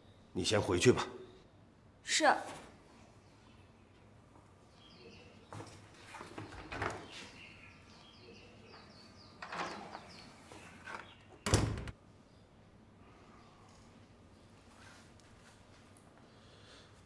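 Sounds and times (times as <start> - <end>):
wooden door opening and shutting: 6.2 - 7.3, 8.8 - 12.0.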